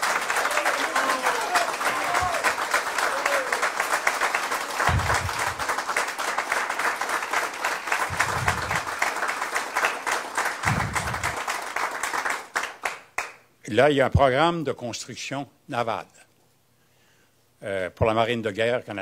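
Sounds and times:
crowd applauding: 0.0s - 13.4s.

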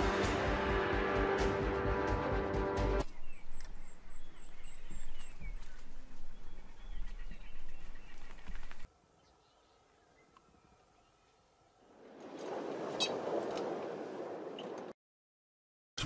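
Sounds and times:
bird trill: 3.0s - 11.2s
birds chirping: 3.0s - 11.8s.

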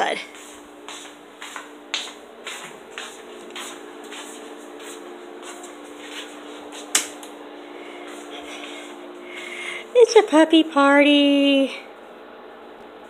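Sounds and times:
steady low hum: 0.0s - 13.0s
footsteps on wooden floor: 0.3s - 7.3s.

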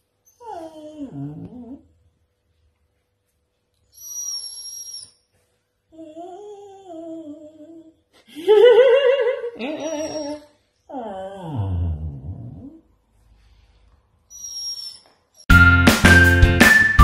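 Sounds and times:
husky whining and howling: 0.3s - 1.8s
high whistle-like squeal: 14.4s - 17.0s.

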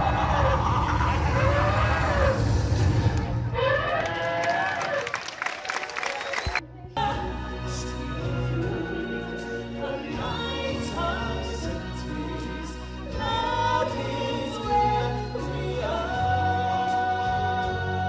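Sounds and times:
choir singing: 7.0s - 18.0s.

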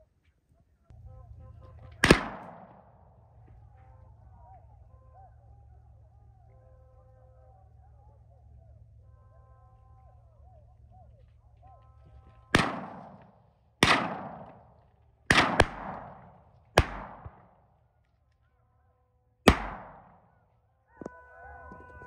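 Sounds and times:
shotgun shots with echo: 2.0s - 3.2s, 12.5s - 17.6s, 19.5s - 20.3s.

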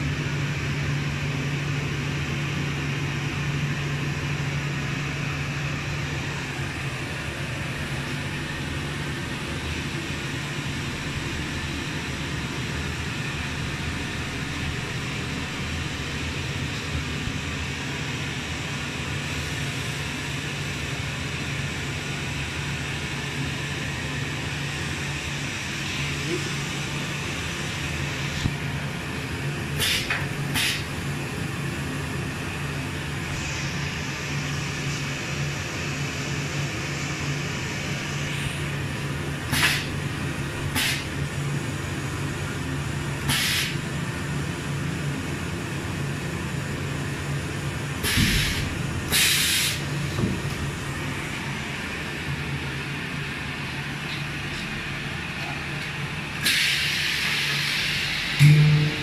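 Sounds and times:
compressed air hissing: 29.8s - 31.0s, 39.4s - 40.0s, 40.6s - 41.1s, 43.3s - 43.8s, 48.0s - 50.2s, 56.4s - 58.8s
welding machine humming: 58.2s - 59.0s.

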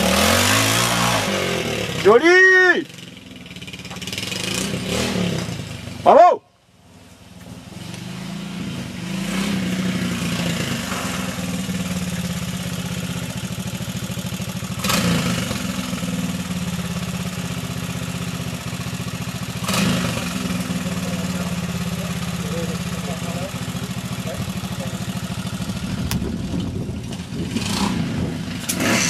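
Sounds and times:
motorcycle engine idling: 1.4s - 6.1s, 11.3s - 28.6s.

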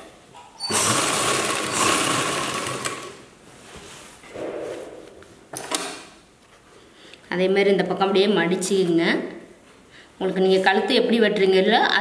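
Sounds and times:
sewing machine running: 0.6s - 3.2s.

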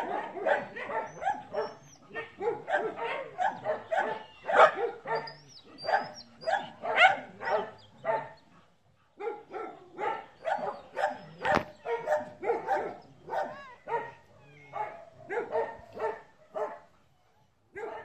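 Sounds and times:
dog barking: 0.0s - 8.4s, 9.2s - 16.9s, 17.7s - 18.0s.

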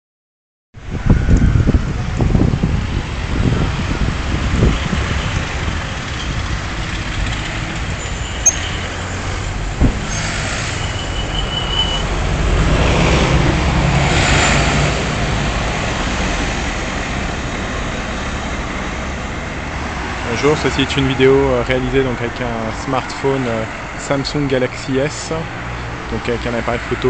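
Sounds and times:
low traffic rumble: 0.8s - 27.0s
cars driving past: 1.2s - 27.0s
brief high squeal: 8.1s - 8.8s, 10.0s - 12.1s.

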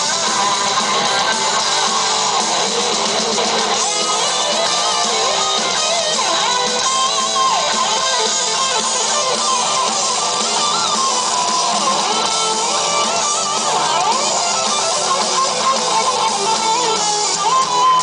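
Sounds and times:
heavy metal band playing live: 0.0s - 18.0s
lead guitar bending pitch: 0.0s - 18.0s.

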